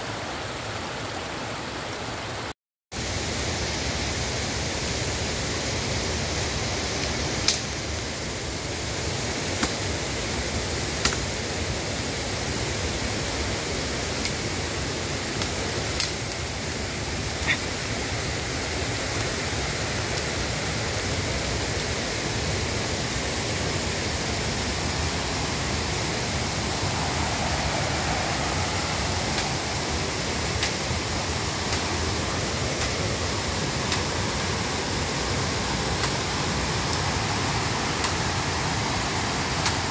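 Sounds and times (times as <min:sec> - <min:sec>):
river rushing: 0:00.0 - 0:39.9
twigs snapping under footsteps: 0:30.6 - 0:30.8, 0:31.6 - 0:32.0, 0:32.7 - 0:33.0.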